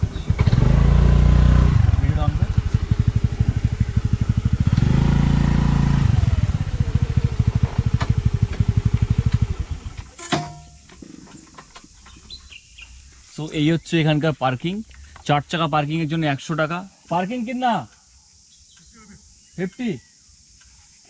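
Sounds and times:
scooter engine idling: 0:00.0 - 0:10.1.

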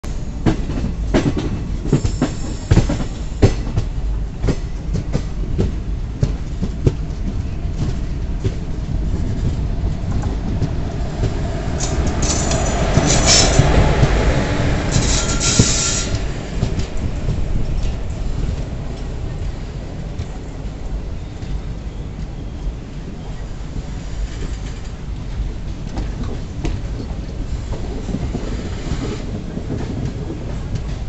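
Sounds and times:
train wheels knocking on rail joints: 0:00.4 - 0:19.6
high wheel squeals: 0:14.9 - 0:16.2.

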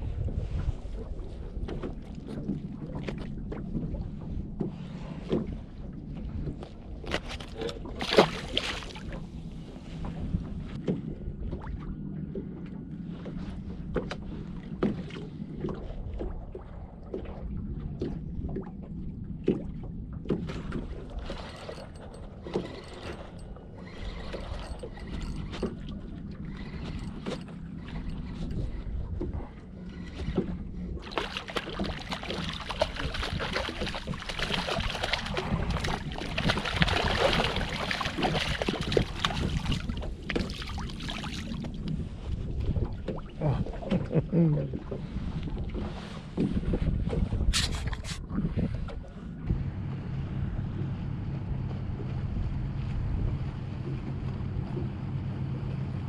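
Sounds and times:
low hum: 0:00.0 - 0:56.0
clicks and knocks of fishing gear: 0:06.5 - 0:08.8, 0:45.5 - 0:48.2
fish splashing into water: 0:08.0 - 0:09.0, 0:31.0 - 0:41.6
fish thrashing at surface: 0:31.0 - 0:41.5.

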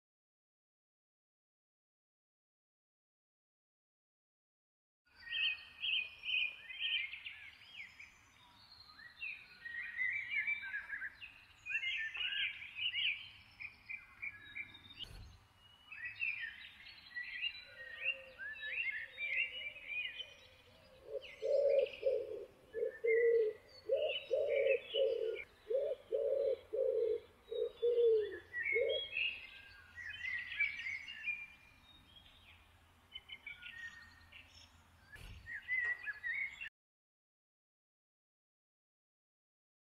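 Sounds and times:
birds chirping and singing: 0:05.1 - 0:36.7
lower bird call: 0:09.6 - 0:31.6.

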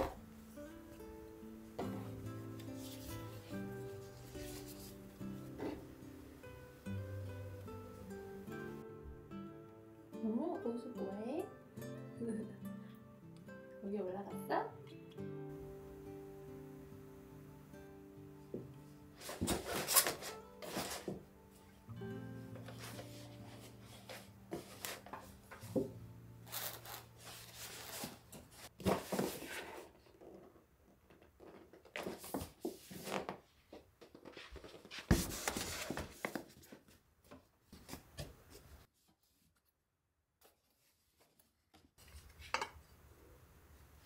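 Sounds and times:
fabric and paper rustling: 0:02.6 - 0:05.8, 0:19.2 - 0:21.3, 0:22.6 - 0:25.8, 0:26.4 - 0:30.2, 0:31.6 - 0:39.8, 0:40.4 - 0:42.6.

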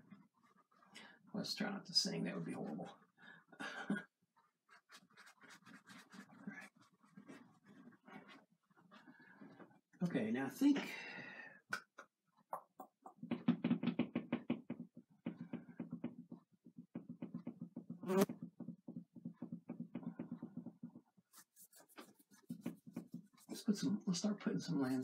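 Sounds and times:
paintbrush strokes: 0:00.0 - 0:01.0, 0:04.4 - 0:09.9, 0:20.2 - 0:25.0.

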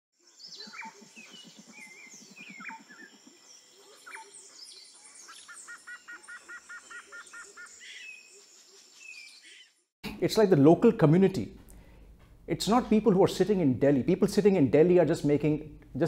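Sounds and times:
wild birds chirping: 0:00.2 - 0:09.9
low pulsing bird call: 0:00.4 - 0:08.2.

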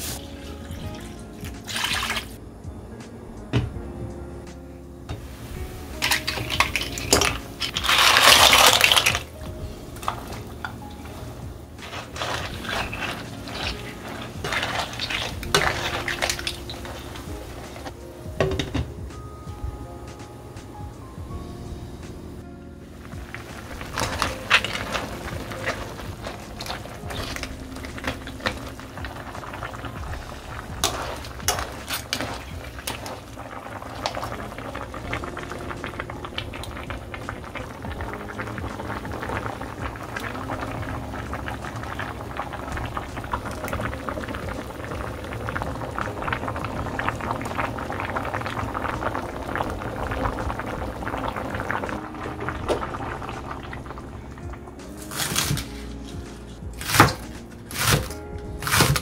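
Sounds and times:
stew bubbling and popping: 0:00.0 - 0:02.4, 0:05.1 - 0:19.1, 0:22.1 - 0:59.0.

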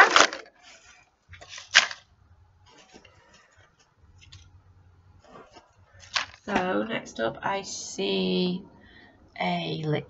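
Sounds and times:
packing paper rustling and crinkling: 0:00.0 - 0:02.0, 0:05.3 - 0:06.5.

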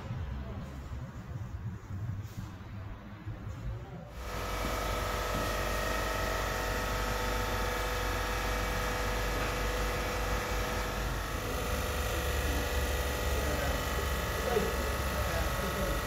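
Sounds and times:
refrigeration machinery running: 0:04.1 - 0:16.0.

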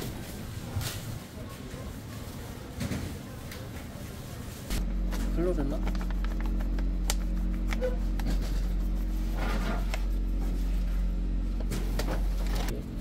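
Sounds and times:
electric motor hum: 0:04.8 - 0:13.0.

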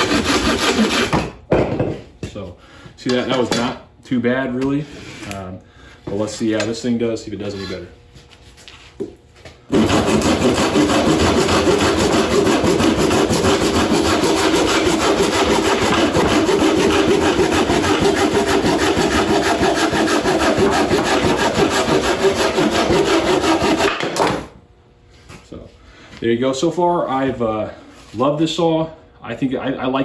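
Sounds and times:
pruning saw cutting dry wood: 0:09.7 - 0:24.0.

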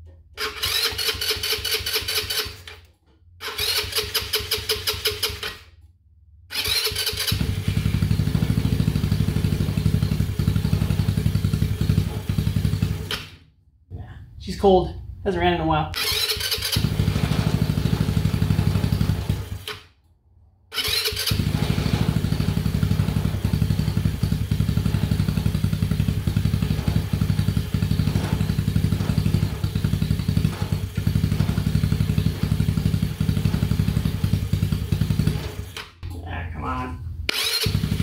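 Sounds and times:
scooter engine running: 0:00.4 - 0:02.7, 0:03.4 - 0:05.5, 0:06.5 - 0:13.3, 0:16.0 - 0:19.8, 0:20.7 - 0:35.8, 0:37.3 - 0:38.0.

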